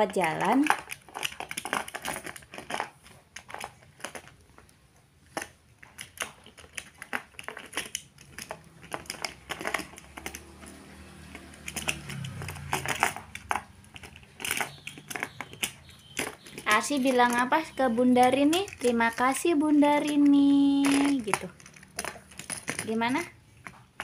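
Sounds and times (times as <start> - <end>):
toy cars clicking against plastic: 0.0 - 24.0.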